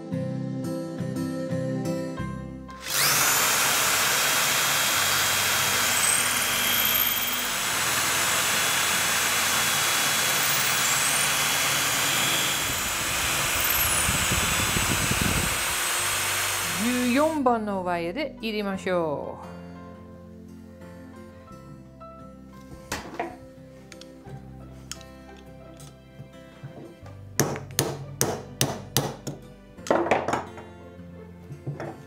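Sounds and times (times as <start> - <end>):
electric drill boring into log: 2.8 - 17.4.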